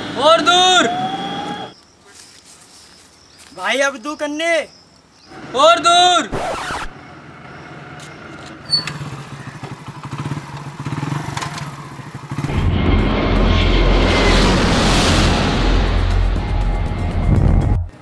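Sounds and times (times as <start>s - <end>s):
motorcycle engine running: 7.1s - 13.7s
jet airliner roar: 12.3s - 17.3s.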